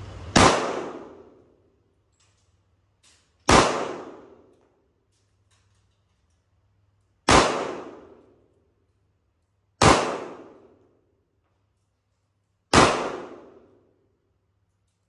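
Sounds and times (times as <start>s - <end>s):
pistol shots echoing: 0.3s - 1.4s, 3.4s - 4.6s, 7.2s - 8.4s, 9.8s - 10.8s, 12.7s - 13.8s.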